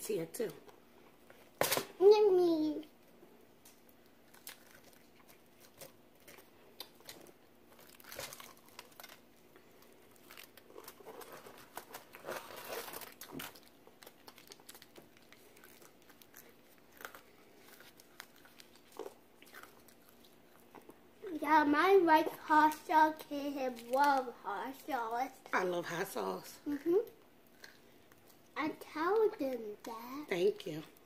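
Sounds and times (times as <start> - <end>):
crispy fried chicken crackling: 3.6 - 21.4.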